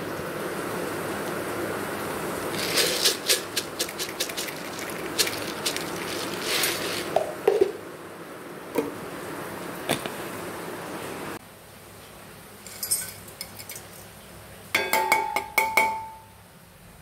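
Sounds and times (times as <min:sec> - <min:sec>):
background hiss: 0:00.0 - 0:14.8
peppercorns rattling on steel plate: 0:02.6 - 0:07.3.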